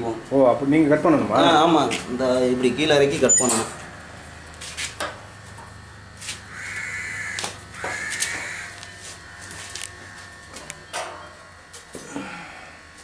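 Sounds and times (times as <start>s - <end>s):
low machine hum: 0.0s - 13.0s
crow cawing: 6.5s - 8.8s.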